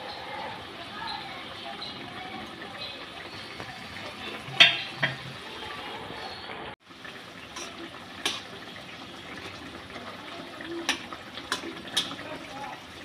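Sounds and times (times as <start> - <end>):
curry bubbling in a wok: 0.0 - 13.0
spatula clicking against pan: 10.8 - 12.2.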